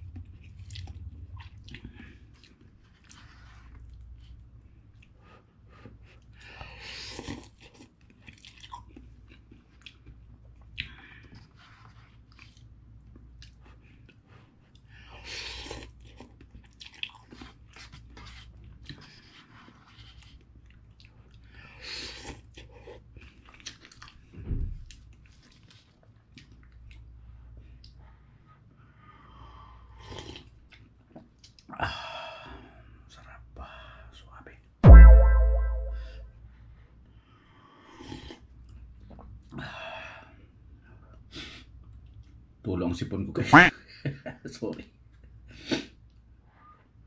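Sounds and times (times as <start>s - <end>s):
person chewing: 15.5s - 18.0s
low thump: 34.8s - 36.2s.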